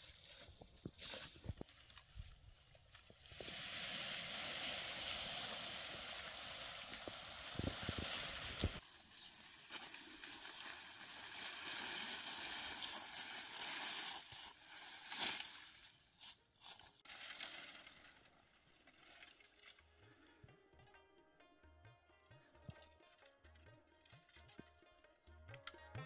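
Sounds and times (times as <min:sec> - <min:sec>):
branches dragged over dry leaves: 0:00.0 - 0:18.2.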